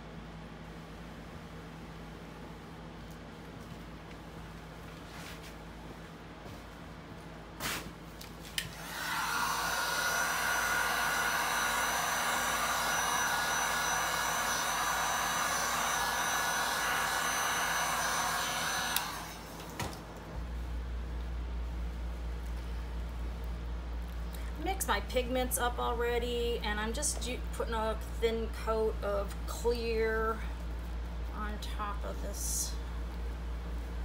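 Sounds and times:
heat gun blowing with faint whine: 7.6s - 24.8s.

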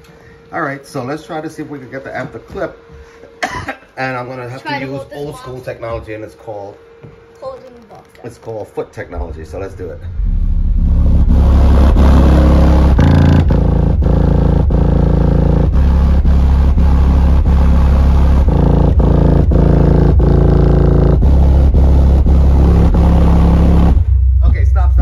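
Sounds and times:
bass-heavy music from subwoofers: 9.4s - 25.0s.

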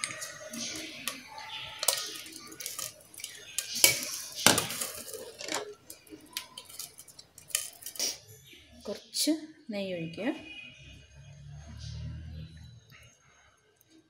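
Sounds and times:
spoon and containers clinking: 0.0s - 8.2s.

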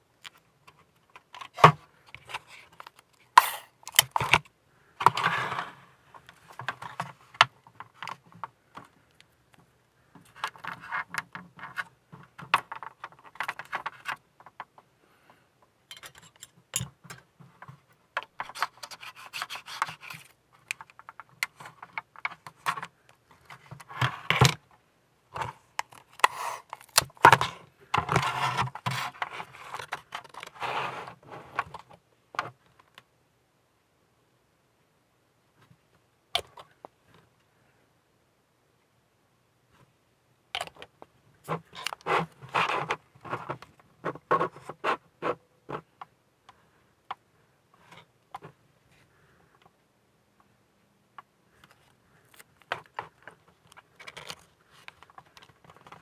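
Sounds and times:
plastic parts handled: 0.2s - 14.9s, 15.9s - 33.0s, 40.5s - 47.2s, 51.2s - 56.0s.

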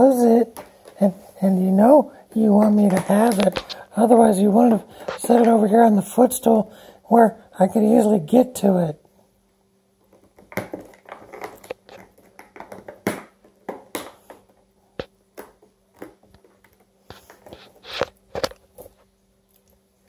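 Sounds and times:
cat gnawing plastic container: 10.1s - 14.4s.

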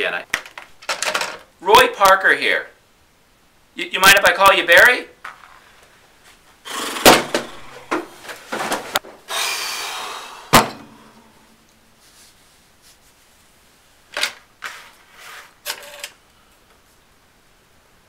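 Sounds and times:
desk chair creaking and rustling: 5.2s - 9.2s, 14.1s - 17.0s.

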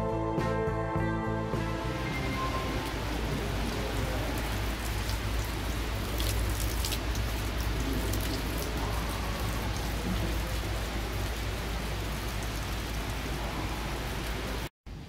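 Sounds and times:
water pouring into stone basin: 2.0s - 14.7s
hand splashing in water stream: 2.6s - 11.6s.

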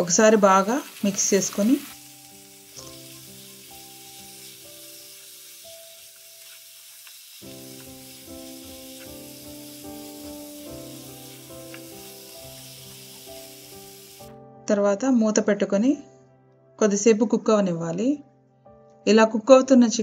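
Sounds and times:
chicken sizzling in a wok: 0.0s - 14.4s
soft background music: 0.0s - 20.0s
spatula scraping wok: 0.5s - 14.3s.

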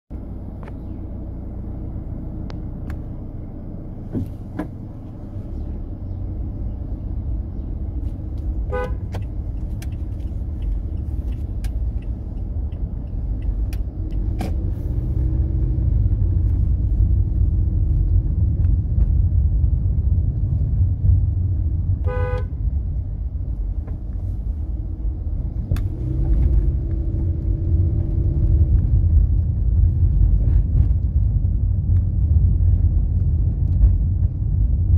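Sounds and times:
road traffic rumble: 0.1s - 34.9s
vehicle horn toots: 8.7s - 9.2s, 22.0s - 22.6s.

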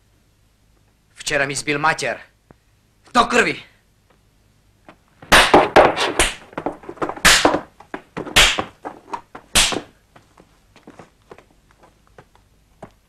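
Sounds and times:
sharp beating blows: 5.2s - 10.0s.

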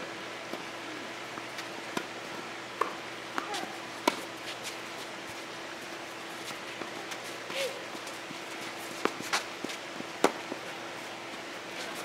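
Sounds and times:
tennis ball bouncing on court: 2.8s - 4.3s, 9.0s - 10.6s
tennis ball struck by rackets: 2.8s - 4.3s, 9.0s - 10.6s.

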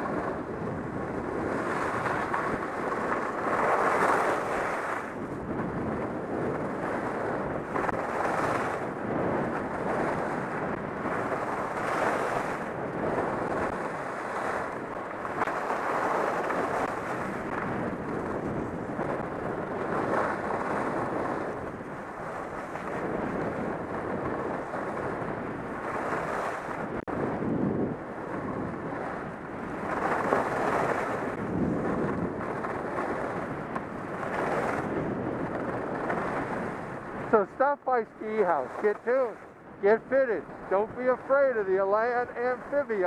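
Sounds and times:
wind rushing over microphone: 0.0s - 43.0s
skis scraping on snow: 1.2s - 5.6s, 37.6s - 43.0s.

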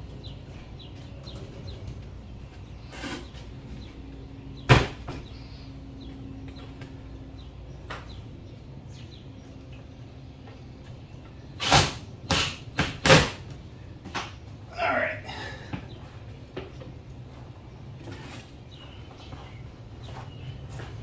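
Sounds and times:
loud thumps: 4.6s - 5.3s.

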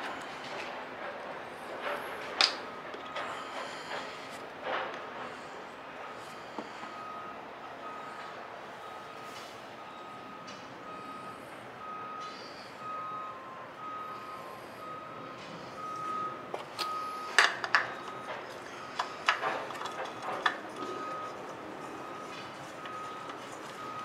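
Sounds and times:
clicks and knocks of hands working: 16.6s - 24.0s.

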